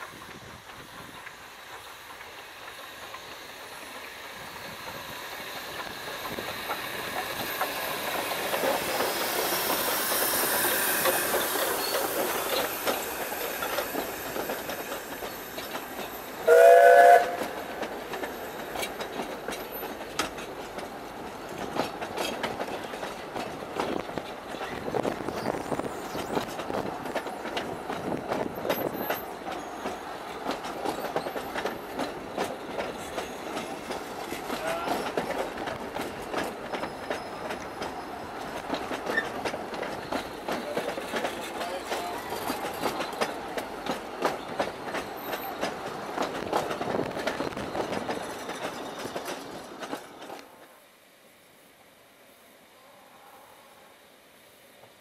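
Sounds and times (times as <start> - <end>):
coaches clicking over rail joints: 0.0 - 50.8
steam locomotive passing: 0.0 - 55.0
steam whistle chord: 16.4 - 17.4.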